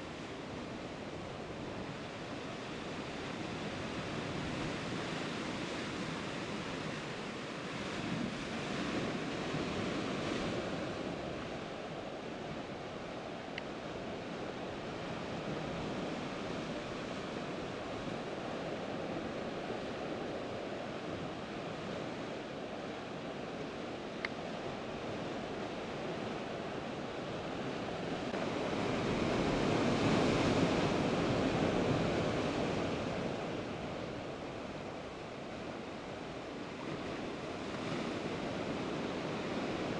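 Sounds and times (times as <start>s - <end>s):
sea surf breaking against rocks: 24.2s - 35.6s.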